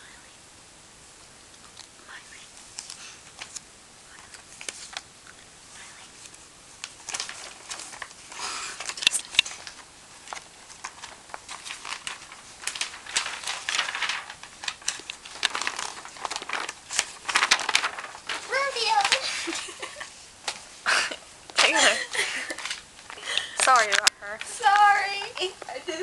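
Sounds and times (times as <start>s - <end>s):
paper rustling and crinkling: 2.6s - 5.1s, 6.2s - 20.8s, 21.5s - 25.8s
sharp paper snaps: 2.7s - 3.6s, 4.2s - 5.1s, 6.2s - 19.6s.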